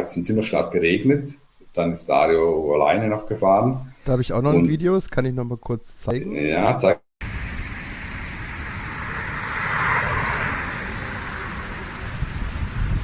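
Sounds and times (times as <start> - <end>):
race car tyre and wind noise: 7.3 - 13.0.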